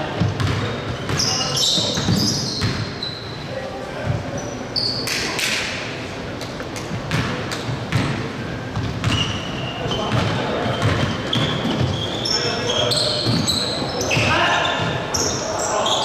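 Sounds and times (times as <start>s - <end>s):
basketball bouncing on court: 0.0s - 2.9s, 6.9s - 12.1s
shoes squeaking on floor: 0.1s - 5.2s, 8.7s - 16.0s
players' voices: 3.4s - 16.0s.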